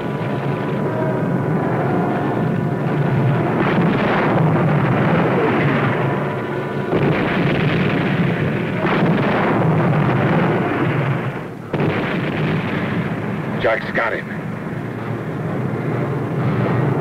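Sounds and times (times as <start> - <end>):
shell bursts rumbling roar: 0.0 - 14.2
sharp blasts: 2.8 - 15.0.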